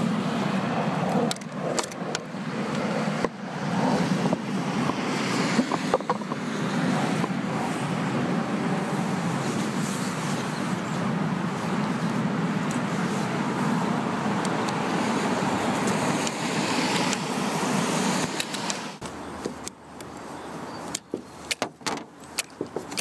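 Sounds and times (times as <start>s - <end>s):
road traffic hum: 0.0s - 23.0s
wiper arms clicking and knocking: 4.2s - 6.4s, 21.0s - 23.0s.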